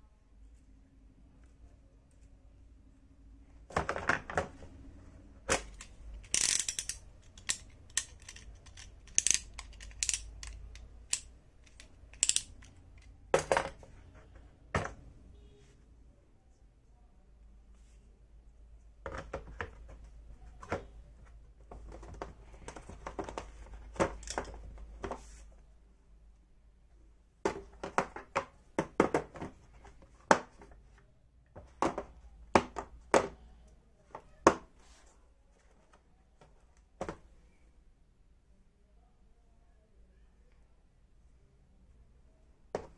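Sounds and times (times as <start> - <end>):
plastic tool case clicks: 5.5 - 12.7, 22.0 - 25.2.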